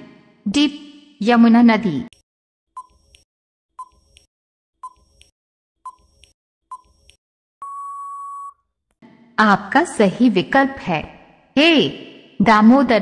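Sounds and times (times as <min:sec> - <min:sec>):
long steady beep: 0:07.6 - 0:08.6.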